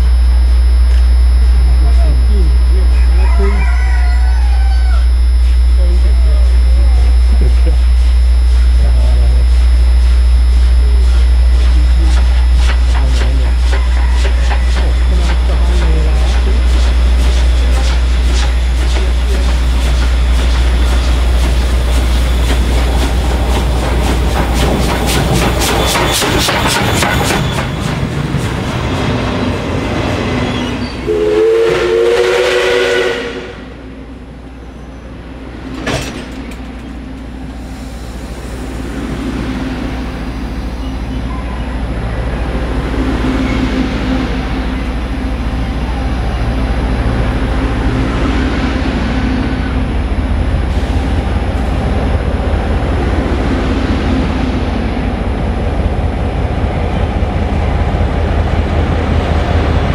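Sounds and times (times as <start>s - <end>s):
train rumble with rail clatter: 0.0s - 59.9s
steam locomotive whistle: 30.4s - 33.9s.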